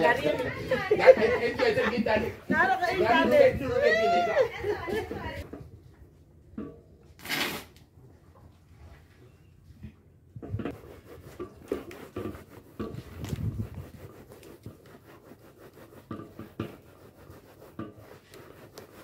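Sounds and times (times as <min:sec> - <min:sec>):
hands rubbing mash through sieve: 0:10.6 - 0:19.0.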